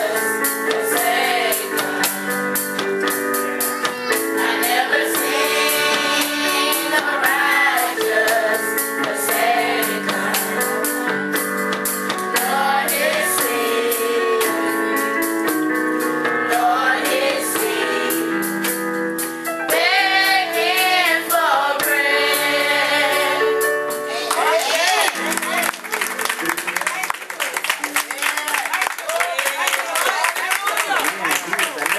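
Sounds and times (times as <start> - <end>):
youth choir singing: 0.0 - 2.8, 3.6 - 11.4, 12.3 - 15.1, 16.4 - 18.6, 19.7 - 25.2
instrumental accompaniment: 0.0 - 28.4
percussion beat: 0.0 - 31.9.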